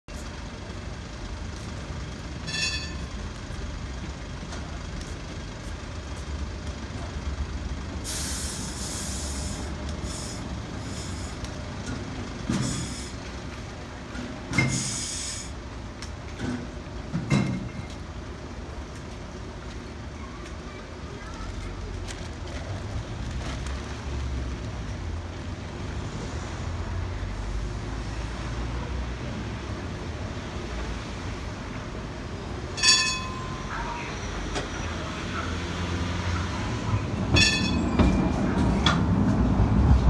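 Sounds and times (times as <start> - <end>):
tram clunks: 0.1 - 40.0
tram rumble: 0.1 - 40.0
air hissing: 8.1 - 11.4, 14.6 - 15.5
brake squeal: 12.5 - 13.3, 14.6 - 15.5, 32.8 - 38.5.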